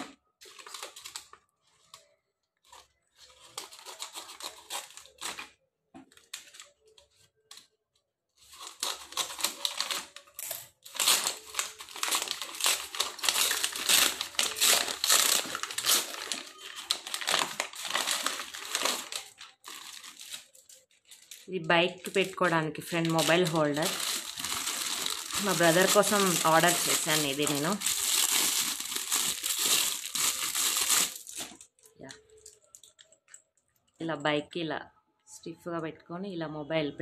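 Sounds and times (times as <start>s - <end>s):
paper rustling and crumpling: 0.0s - 7.7s, 8.4s - 21.5s, 22.9s - 31.7s
scissors cutting paper: 3.4s - 5.5s.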